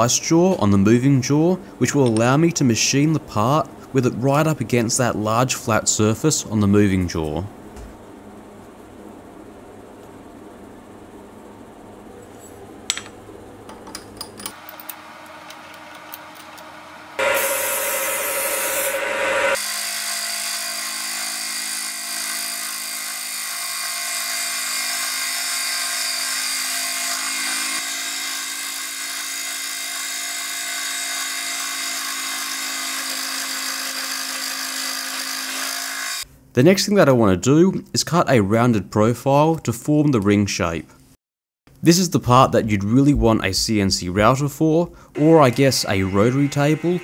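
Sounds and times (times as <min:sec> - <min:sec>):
milling machine motor whine: 0:14.6 - 0:24.9, 0:45.2 - 0:47.0
cutter hiss: 0:17.2 - 0:19.9, 0:45.2 - 0:47.0.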